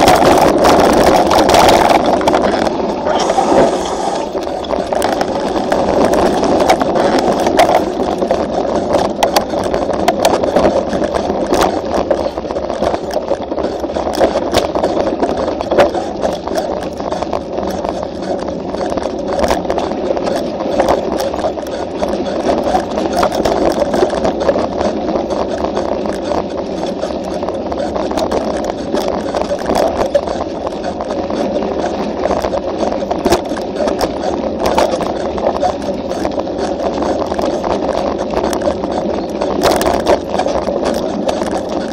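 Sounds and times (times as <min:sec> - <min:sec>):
bike rattling over bumps: 0:00.0 - 0:41.9
tyres and air rushing: 0:02.9 - 0:04.4.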